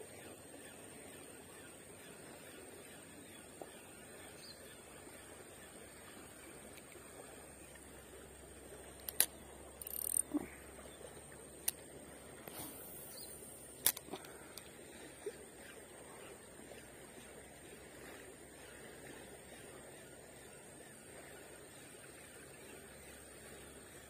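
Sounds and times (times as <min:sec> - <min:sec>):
fishing reel clicks: 0:09.0 - 0:10.3
short scrape from handling reel: 0:09.8 - 0:10.3.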